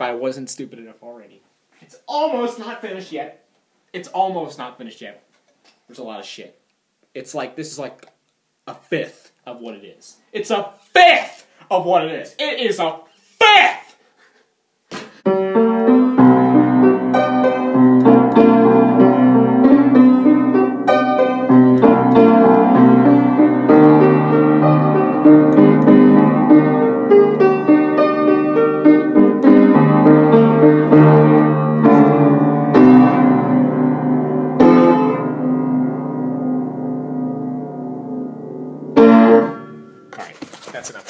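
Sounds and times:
piano music: 15.3s - 40.1s.

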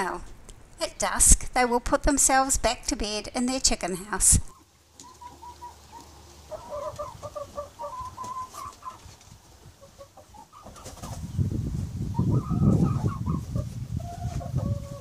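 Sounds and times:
hens clucking: 4.0s - 15.0s.

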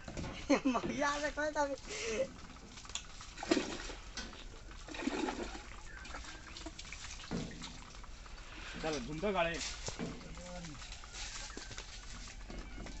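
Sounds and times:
water rushing into a tank: 0.0s - 11.2s.

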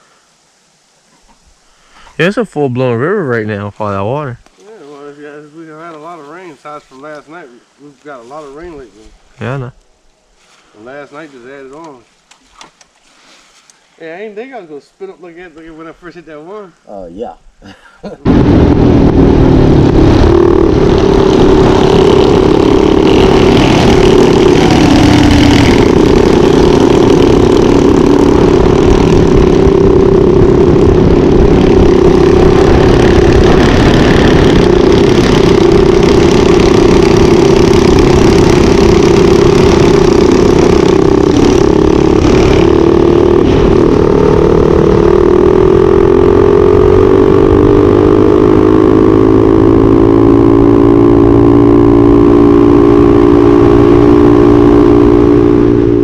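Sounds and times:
wind rush over microphone: 18.3s - 47.9s
mini bike engine running hard: 18.7s - 56.0s.

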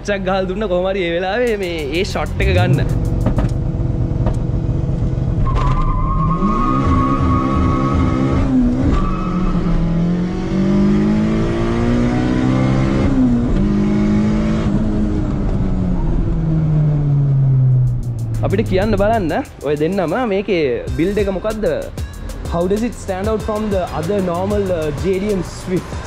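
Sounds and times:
high whine: 1.4s - 5.7s, 17.2s - 19.9s
car engine accelerating hard: 2.2s - 19.6s.

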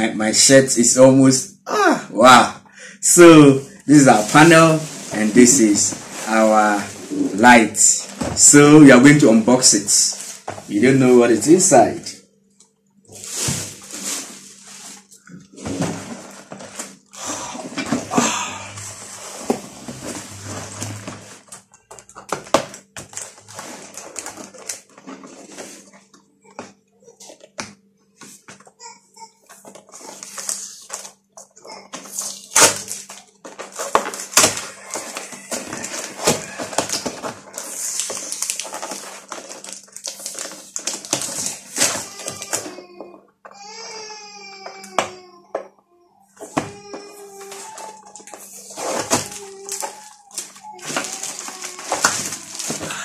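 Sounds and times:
packaging rustling: 3.9s - 8.7s, 13.1s - 26.1s, 29.6s - 31.2s, 31.9s - 42.9s, 46.6s - 53.0s
cardboard box rustling and scraping: 18.8s - 21.5s
packaging clicks and crackles: 31.9s - 42.7s, 47.3s - 53.0s.

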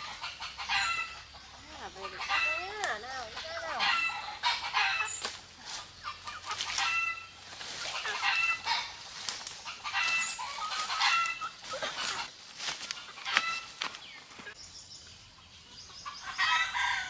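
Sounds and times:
chickens clucking: 0.0s - 14.6s, 15.2s - 17.0s
leaf litter crackling underfoot: 5.1s - 14.6s.

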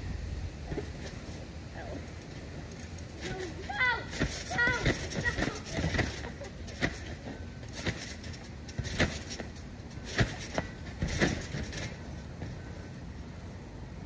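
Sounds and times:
thumps on trampoline mat: 4.1s - 12.6s.

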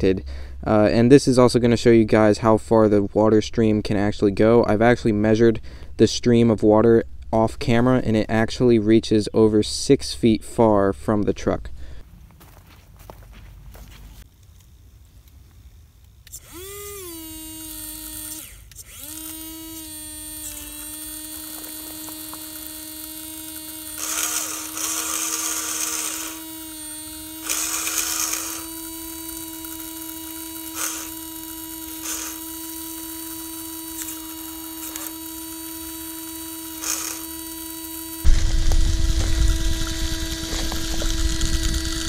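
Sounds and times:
electric water pump whining: 16.2s - 42.0s.

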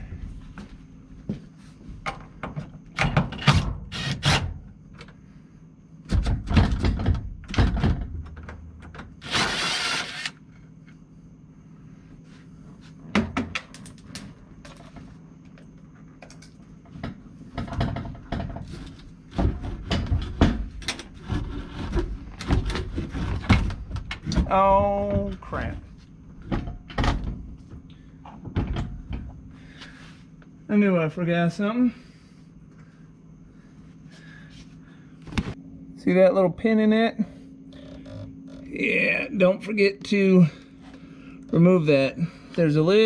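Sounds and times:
metal clunks and knocks: 2.0s - 3.8s, 6.1s - 9.1s, 13.1s - 14.0s, 16.9s - 25.5s, 26.4s - 29.4s
cordless impact driver running: 9.2s - 10.4s.

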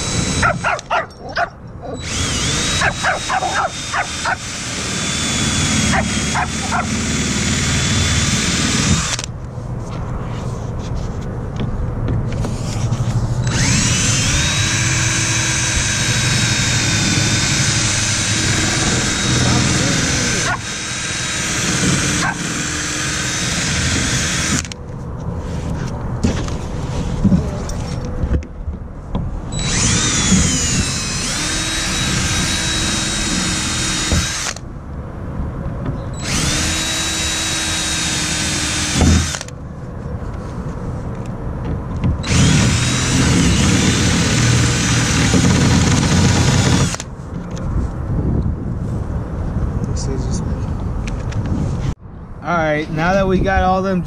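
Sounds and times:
cordless drill whining: 0.0s - 0.9s, 2.0s - 9.3s, 13.4s - 24.8s, 29.5s - 34.6s, 36.2s - 39.5s, 42.2s - 47.1s.

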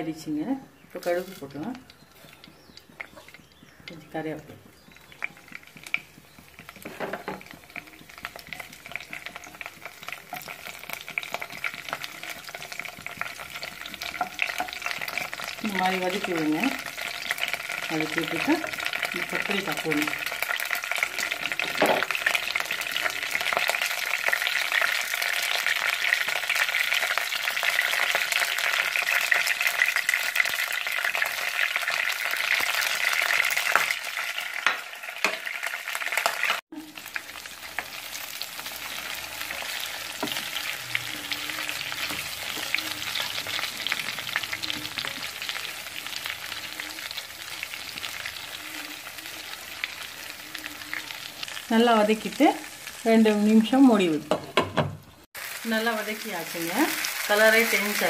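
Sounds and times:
oil sizzling in a pan: 0.0s - 58.0s
spatula scraping and tapping: 4.6s - 15.4s, 39.5s - 43.7s.

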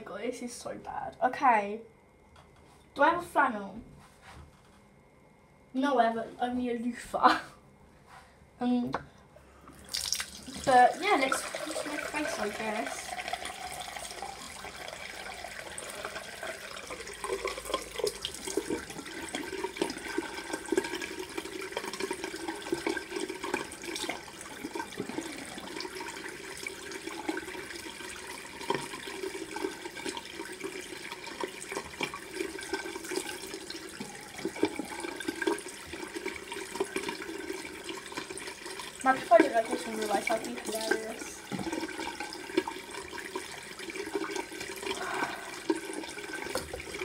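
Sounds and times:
water splashing: 9.8s - 24.2s
tap running into sink: 39.2s - 42.8s, 46.4s - 47.0s.

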